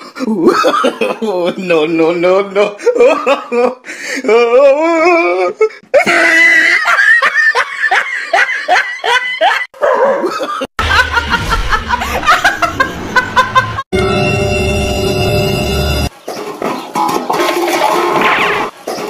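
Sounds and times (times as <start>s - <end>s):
person laughing hard: 0.2s - 1.4s, 2.7s - 13.9s.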